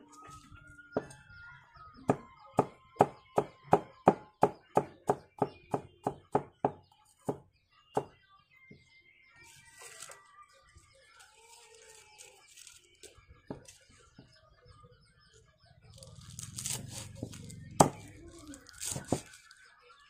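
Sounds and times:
knife chopping on wooden block: 16.6 - 18.1.

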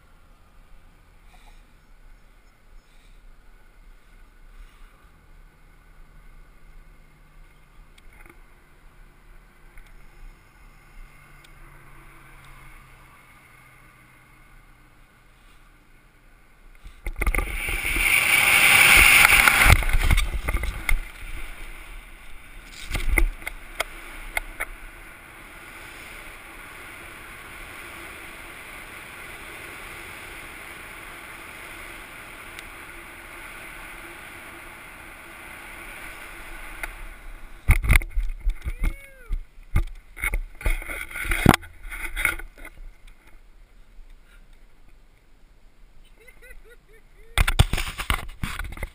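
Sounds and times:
wind rushing over microphone: 17.0 - 32.4.

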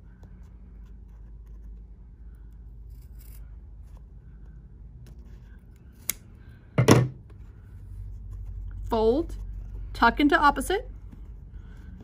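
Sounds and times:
scissors cutting fabric: 2.8 - 3.7.

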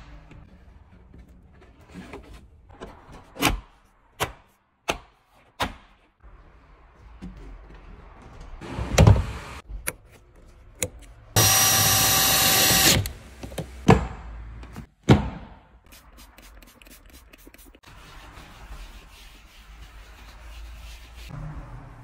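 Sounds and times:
cordless drill running: 11.4 - 13.1.

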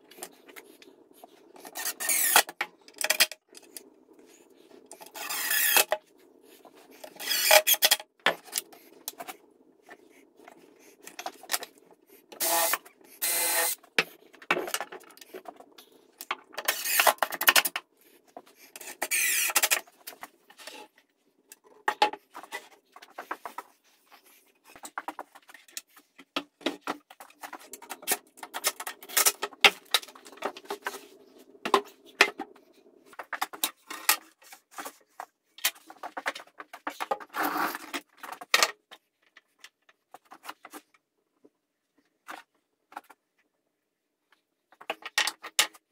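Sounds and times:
cordless driver running screws: 1.8 - 2.4, 5.2 - 5.9, 7.2 - 7.8, 12.4 - 13.8, 19.1 - 19.6
boards and tools clattering: 24.8 - 38.7.

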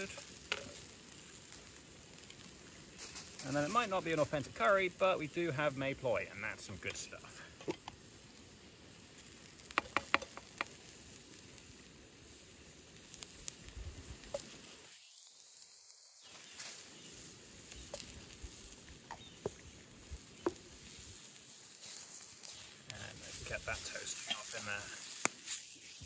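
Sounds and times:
food sizzling in a pan: 0.0 - 26.0
sharp ticks: 9.7 - 10.8.

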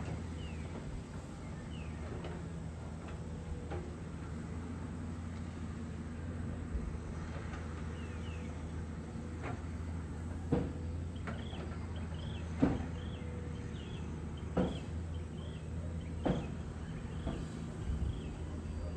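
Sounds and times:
distant excavator diesel engine: 0.0 - 18.9.

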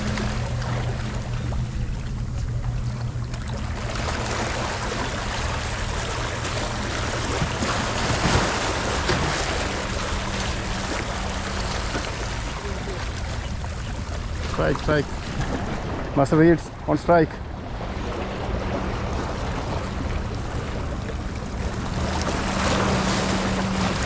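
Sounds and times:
low steady hum: 0.0 - 24.0
wind and sea water rushing: 0.0 - 24.0.

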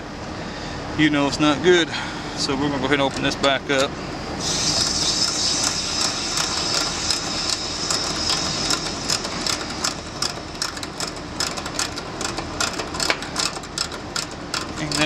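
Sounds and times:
refrigerant hissing: 4.4 - 10.7
ratchet wrench clicking: 4.4 - 15.0.

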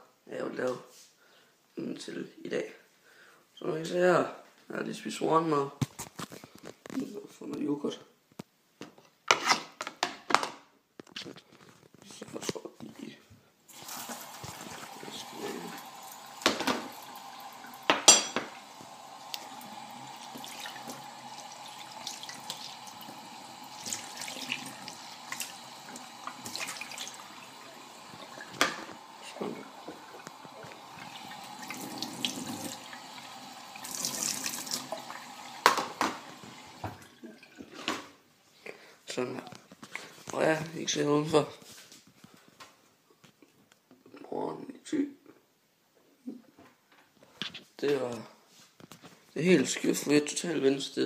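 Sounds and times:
tap running into a metal sink: 13.8 - 27.2, 28.1 - 32.9, 33.8 - 37.1
dish knocking and clinking: 16.4 - 17.0, 17.8 - 18.6.

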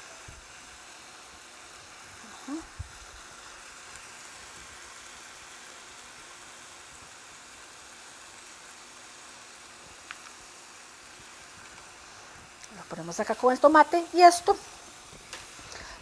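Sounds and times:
vegetables sizzling in a pan: 0.0 - 16.0.

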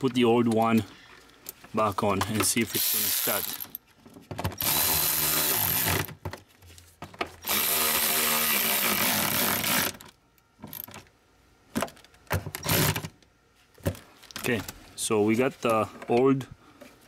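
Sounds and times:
electric ratchet motor whining: 4.6 - 6.1, 7.4 - 10.0.

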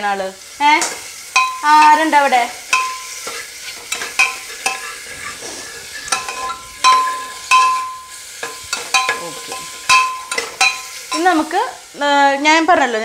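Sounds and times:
light sizzle: 0.0 - 13.0
metal spoon scraping a pot: 2.7 - 11.5.

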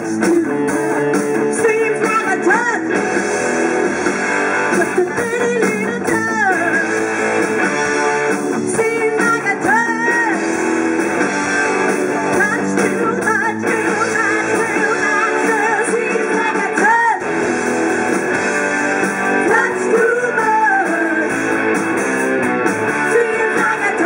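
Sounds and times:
woman singing: 0.0 - 0.7, 1.5 - 2.9, 4.8 - 6.8, 8.6 - 10.4, 12.3 - 17.3, 19.4 - 21.3, 23.1 - 24.0
bass guitar: 0.0 - 24.0
drums: 0.0 - 24.0
electric guitar: 0.0 - 24.0.

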